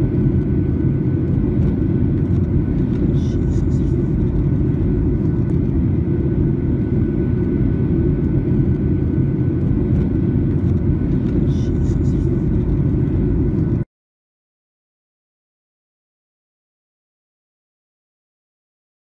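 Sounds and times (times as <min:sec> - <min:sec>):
jet airliner cabin roar: 0:00.0 - 0:13.9.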